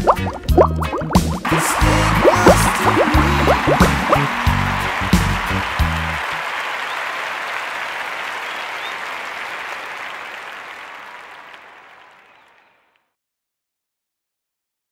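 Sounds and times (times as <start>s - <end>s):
audience applause: 1.4s - 13.0s.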